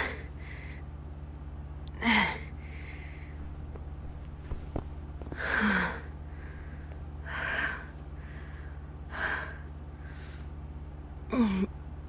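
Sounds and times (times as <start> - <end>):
woman breathing heavily: 0.0 - 0.9, 1.9 - 10.7
low steady hum: 0.0 - 12.0.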